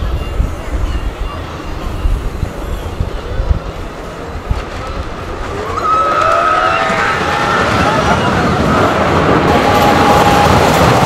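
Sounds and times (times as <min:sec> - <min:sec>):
roller coaster rumbling and clattering: 0:00.0 - 0:11.0.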